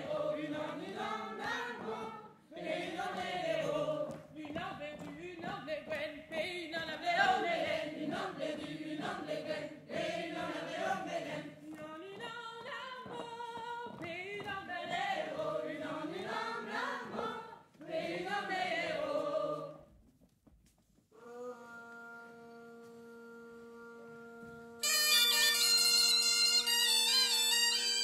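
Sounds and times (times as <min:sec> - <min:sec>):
choir singing unaccompanied: 0:00.0 - 0:13.2, 0:13.9 - 0:19.8.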